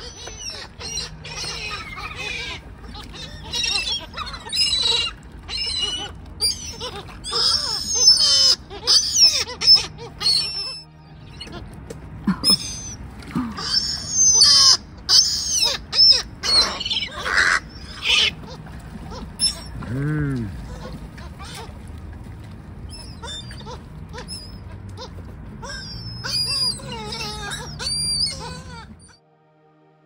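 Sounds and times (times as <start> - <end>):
gulls crying: 0.0 - 29.2.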